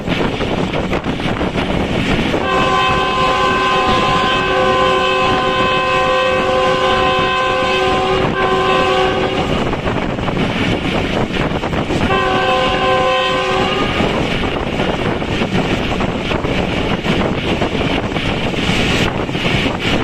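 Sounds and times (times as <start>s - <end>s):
train coach rushing and rumbling: 0.0s - 20.0s
train horn blast: 2.3s - 9.9s, 12.0s - 14.3s.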